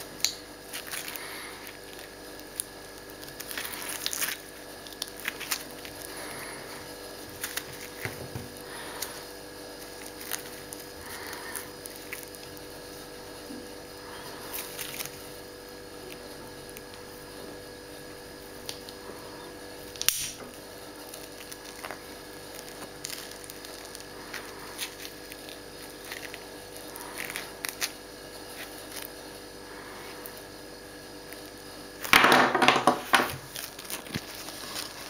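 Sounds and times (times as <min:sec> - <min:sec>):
faint steady hum: 0:00.0 - 0:35.0
glove fabric rustling: 0:33.3 - 0:35.0.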